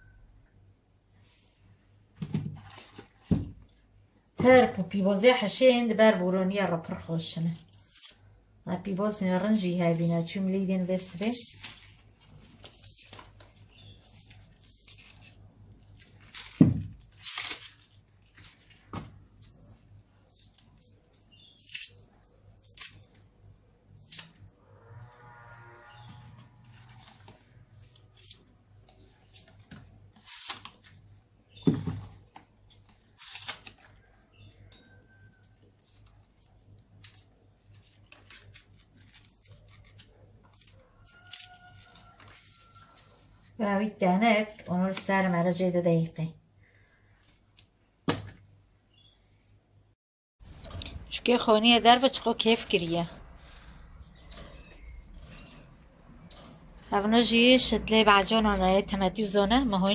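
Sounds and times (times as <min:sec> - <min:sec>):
herbs tearing and snapping: 0:20.3 - 0:23.3, 0:24.0 - 0:24.5, 0:32.3 - 0:34.1.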